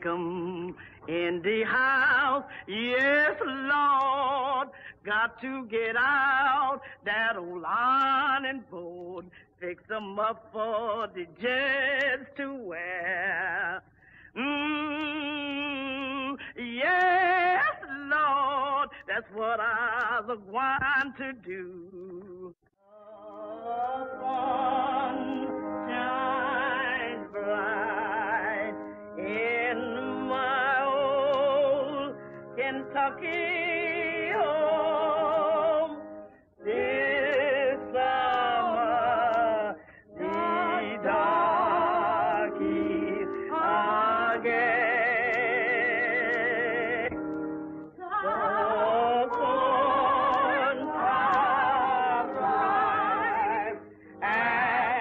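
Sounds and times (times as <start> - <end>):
woman singing operatically: 0.0 - 13.8, 14.4 - 36.0, 36.6 - 47.2, 47.9 - 55.0
instrumental accompaniment: 22.9 - 55.0.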